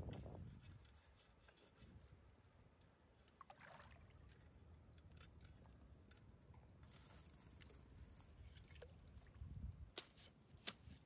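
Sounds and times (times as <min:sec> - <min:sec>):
water sloshing: 0:03.2 - 0:05.8.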